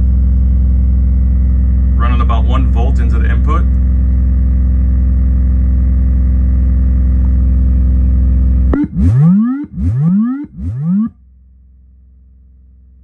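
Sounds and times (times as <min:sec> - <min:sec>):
low drone through guitar amp: 0:00.0 - 0:11.1
upward pitch sweeps: 0:08.7 - 0:11.1.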